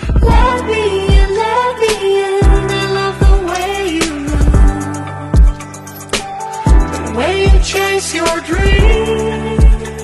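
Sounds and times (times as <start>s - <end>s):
pop music: 0.0s - 10.0s
deep bass kicks: 4.3s - 5.6s.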